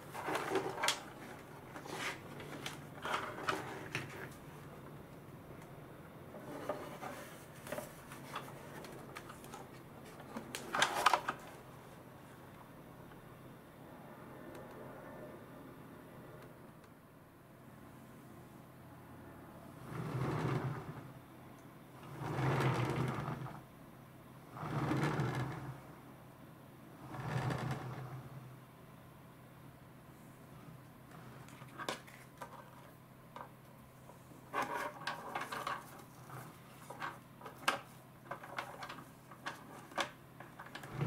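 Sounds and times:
plastic turntable rumbling and scraping: 0:00.0 - 0:04.6, 0:06.4 - 0:11.6, 0:19.8 - 0:21.2, 0:22.0 - 0:23.6, 0:24.5 - 0:25.9, 0:27.0 - 0:28.5, 0:31.1 - 0:32.8, 0:34.5 - 0:41.0.

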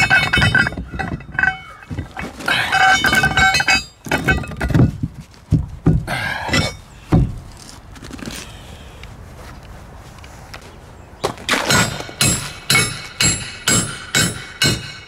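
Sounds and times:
knocks and thuds on plywood: 0:04.6 - 0:06.1, 0:07.1 - 0:07.4.

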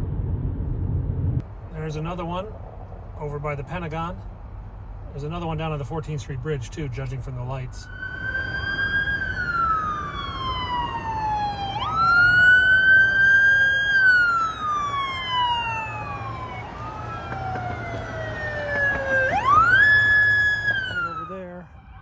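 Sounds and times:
fainter second siren: 0:07.8 - 0:22.0
police siren wailing: 0:07.8 - 0:22.0.

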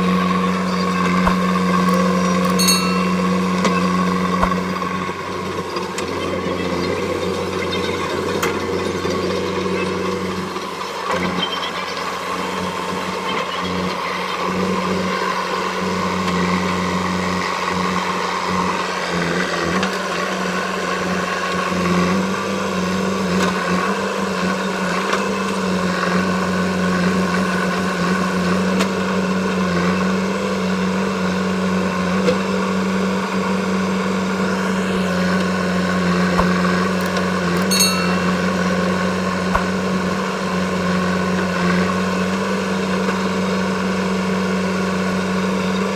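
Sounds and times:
diesel engine running: 0:00.0 - 0:45.9
metallic ping: 0:02.5 - 0:04.9, 0:37.6 - 0:38.9.

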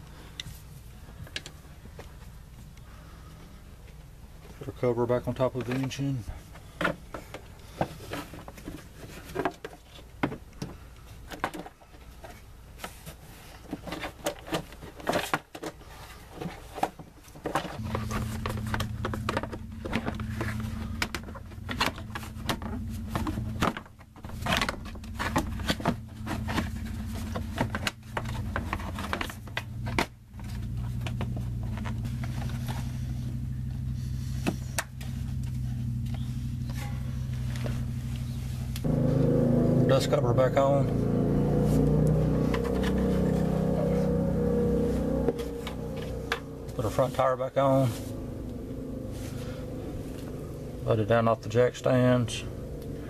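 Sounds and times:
plastic covers clicking and rattling: 0:11.3 - 0:17.8
steady low hum: 0:17.7 - 0:53.0.

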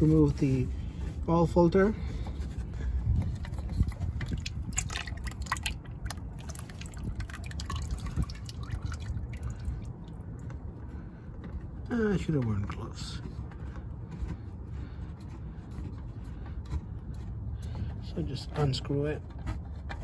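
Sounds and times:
oil dripping into drain pan: 0:03.8 - 0:10.2.

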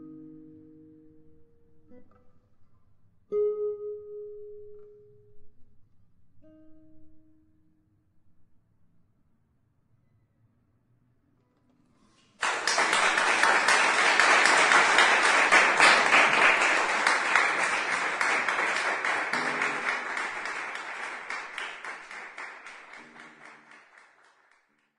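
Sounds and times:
audience applause: 0:12.4 - 0:24.8.

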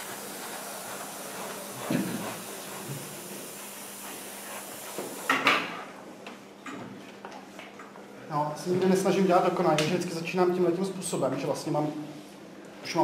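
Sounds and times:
airbrush hissing: 0:00.0 - 0:05.4.

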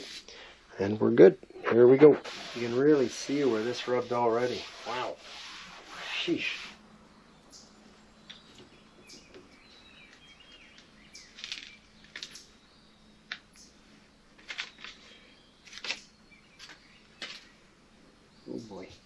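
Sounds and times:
soft rustling scrapes: 0:00.0 - 0:00.3, 0:01.8 - 0:06.8.

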